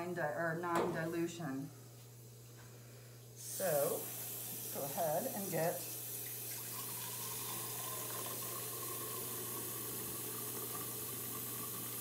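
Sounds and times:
water pouring into a cylinder: 5.9 - 12.0.

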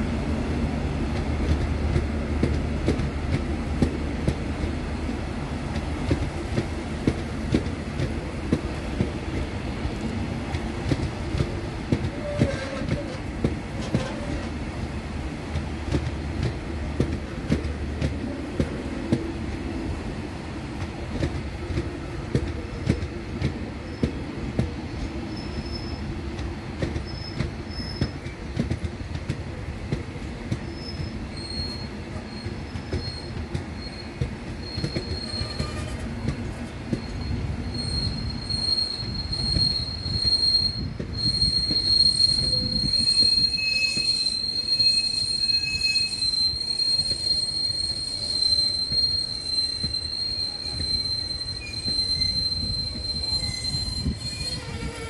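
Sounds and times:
train wheels rumbling over rails: 0.0 - 55.0
high-pitched wheel squeals: 12.1 - 13.2, 25.3 - 26.1, 30.7 - 36.2, 36.9 - 55.0.

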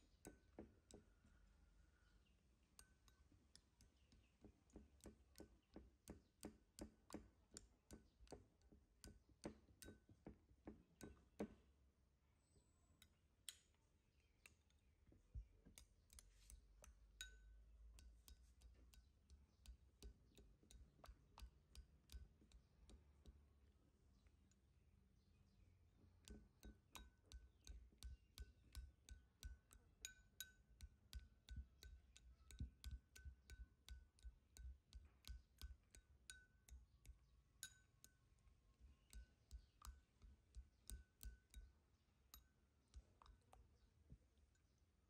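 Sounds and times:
spoon clinking against ceramic bowl: 15.8 - 19.0, 26.2 - 36.8, 37.6 - 38.2, 39.0 - 41.7.

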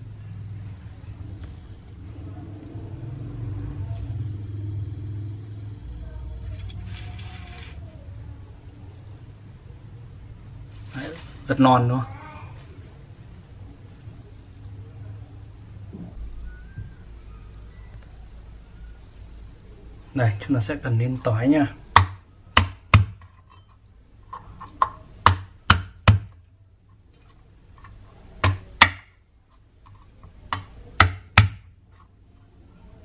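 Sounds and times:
low background rumble: 0.0 - 10.9
faint whistle-like tones: 16.0 - 19.9.

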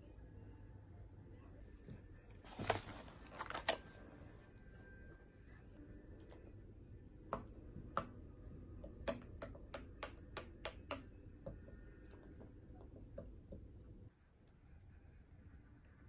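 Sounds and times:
wooden spoon clicking against bowl: 8.8 - 11.1.

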